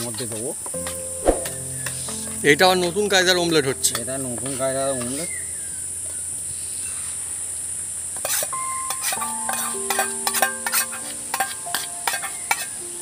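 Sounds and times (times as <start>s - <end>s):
steady high hiss: 0.0s - 13.0s
metal spoon beating eggs in dish: 10.4s - 12.7s.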